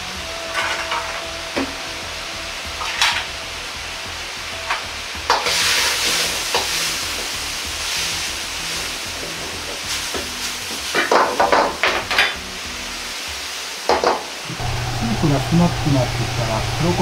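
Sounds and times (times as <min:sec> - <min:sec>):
stock bubbling and sizzling: 0:00.0 - 0:17.0
ladle scraping wok: 0:04.3 - 0:11.9.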